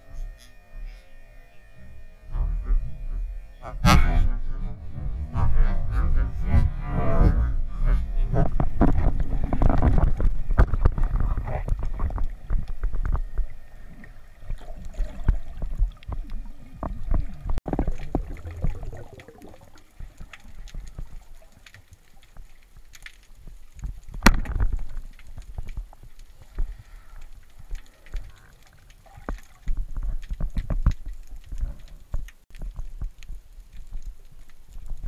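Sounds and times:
underwater water rushing: 7.3s - 22.3s.

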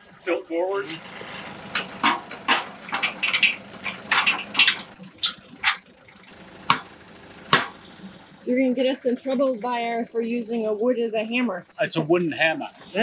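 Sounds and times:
steady low hum: 0.0s - 13.0s
metal clunks and knocks: 0.9s - 5.9s, 6.6s - 8.2s.

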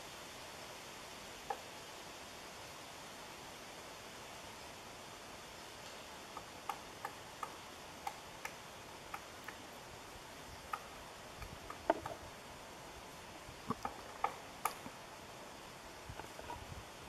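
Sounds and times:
steady hiss: 0.0s - 17.0s
woodpecker tapping on bark: 6.3s - 9.8s, 10.4s - 12.3s, 13.6s - 15.0s.

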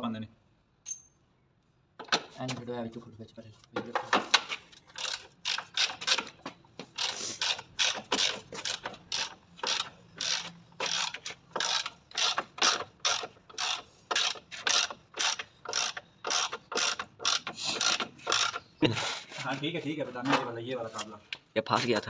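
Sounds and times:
ratchet wrench clicking: 5.0s - 6.3s, 7.0s - 18.6s.

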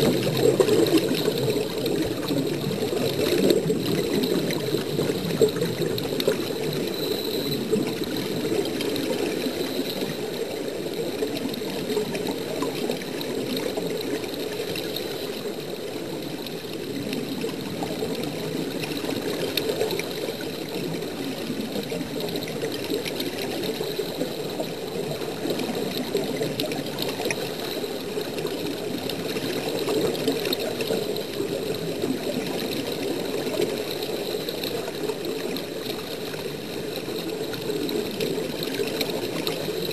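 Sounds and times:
underwater air bubbling: 0.0s - 39.9s.

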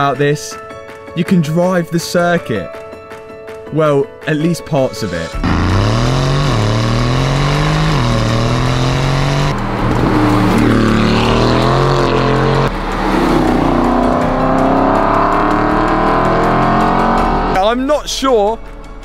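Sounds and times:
sports car engine accelerating: 5.4s - 17.6s.

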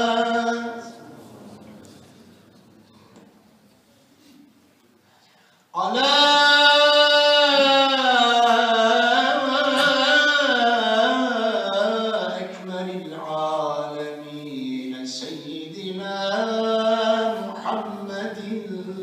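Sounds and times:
man chanting: 0.0s - 1.0s, 5.8s - 19.0s.

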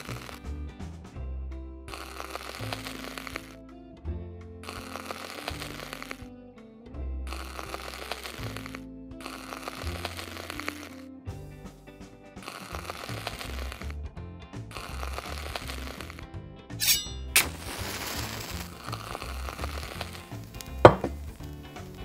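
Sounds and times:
saucepan knock with ring: 20.8s - 21.2s.

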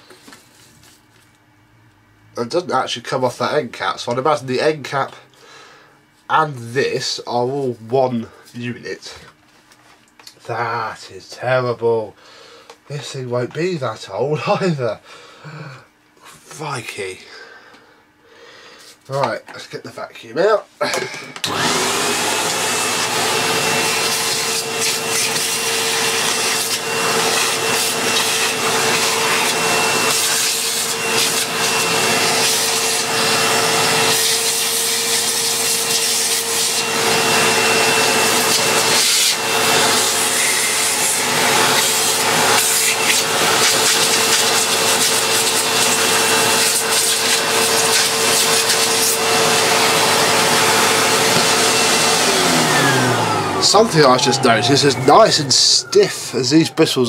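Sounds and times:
vacuum cleaner whining: 20.4s - 57.0s.

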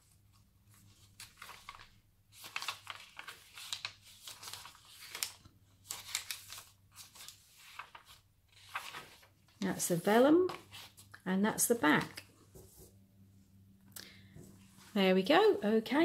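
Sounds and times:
paper pages turning: 0.3s - 11.2s.

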